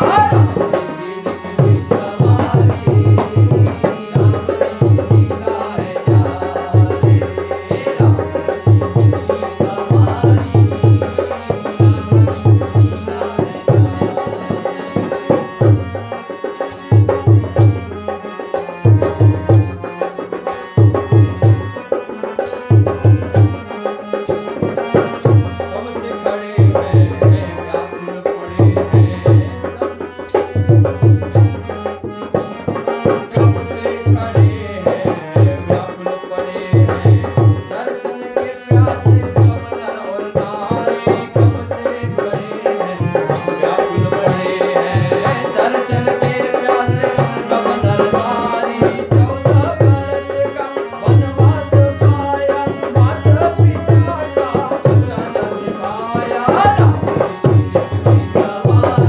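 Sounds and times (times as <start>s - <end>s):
hand drum rhythm: 0.0s - 59.0s
harmonium melody: 0.0s - 59.0s.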